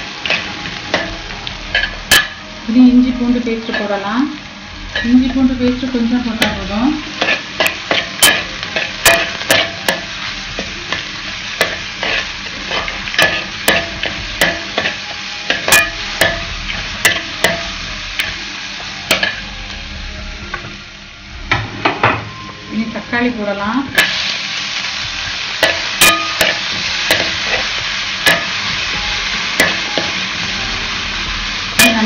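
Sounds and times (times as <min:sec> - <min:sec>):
onions sizzling in oil: 0:00.0 - 0:32.0
spoon clinking and scraping pan: 0:07.2 - 0:11.0, 0:11.6 - 0:18.4, 0:25.6 - 0:28.6.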